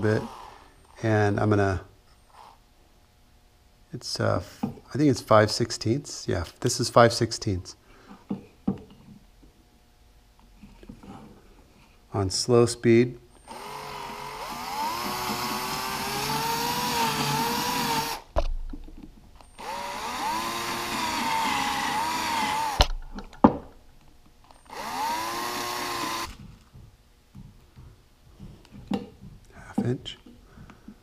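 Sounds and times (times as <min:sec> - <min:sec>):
cordless drill boring through plywood: 0:00.0 - 0:00.6, 0:13.4 - 0:18.3, 0:19.6 - 0:22.9, 0:24.7 - 0:26.4
sharp drill clicks: 0:13.4 - 0:18.3, 0:19.4 - 0:22.9, 0:24.5 - 0:26.4.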